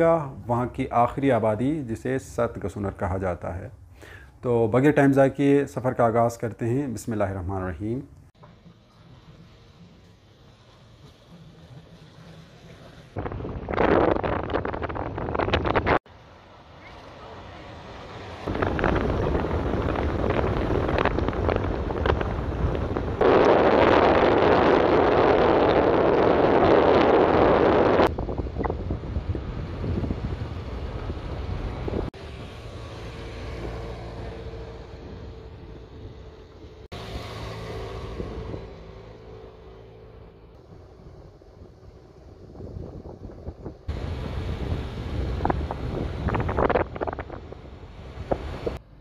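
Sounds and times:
car road noise: 8.2 - 49.0
wind buffeting microphone: 12.7 - 16.1, 18.4 - 32.2, 40.8 - 48.8.

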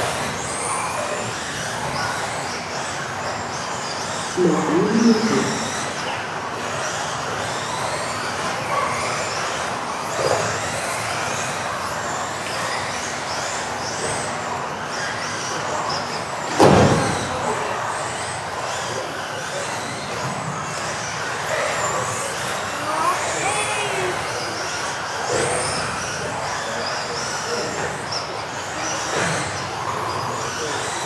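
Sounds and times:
rc car motors whining: 0.0 - 31.0.

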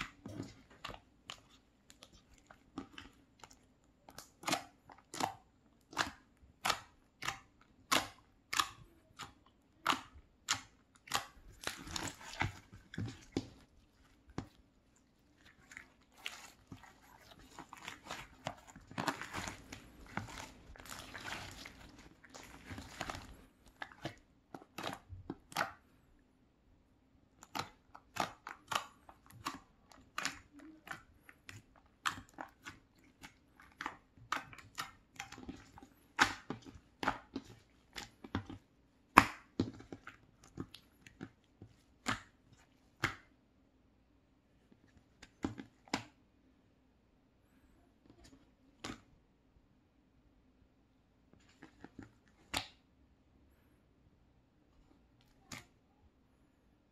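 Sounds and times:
slime squelching and crackling: 0.0 - 26.0, 27.2 - 43.4.

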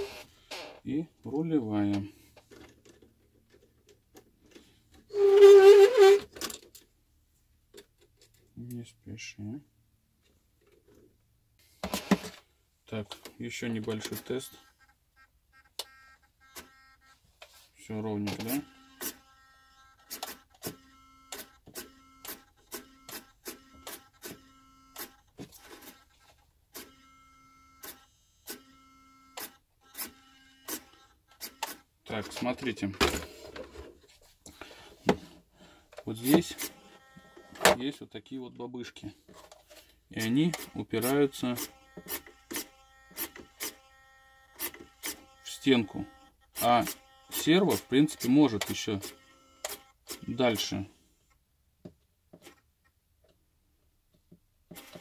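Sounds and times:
steering servo whining: 18.5 - 31.8, 36.5 - 37.7, 40.5 - 50.4.

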